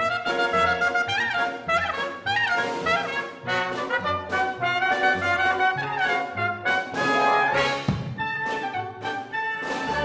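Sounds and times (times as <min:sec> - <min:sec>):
chamber ensemble playing: 0:00.0 - 0:10.0.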